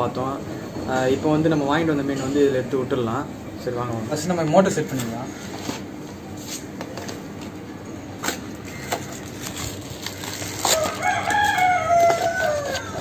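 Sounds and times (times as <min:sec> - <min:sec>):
packaging being handled: 0:08.2 - 0:13.0
rooster crowing: 0:10.6 - 0:13.0.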